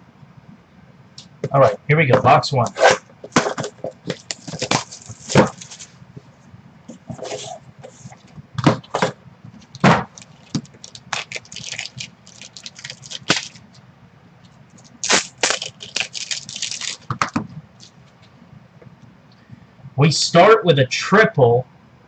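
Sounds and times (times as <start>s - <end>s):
plastic wrapping tearing and crinkling: 3.3s - 5.9s, 9.6s - 13.8s, 14.8s - 17.9s.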